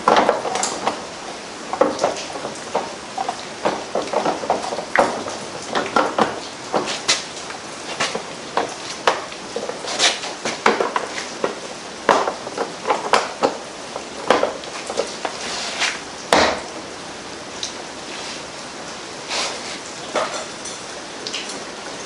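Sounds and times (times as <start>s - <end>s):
clicks and knocks of tools on engine: 0.0s - 1.1s, 1.7s - 15.4s.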